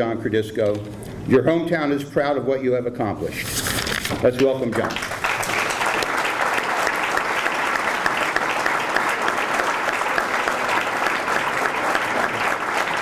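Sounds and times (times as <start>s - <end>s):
audience applauding: 4.4s - 13.0s.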